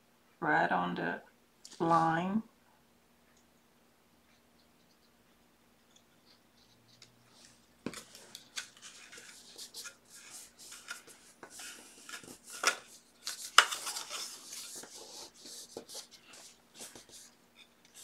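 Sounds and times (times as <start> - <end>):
paper rustling and scraping: 7.3 - 18.0.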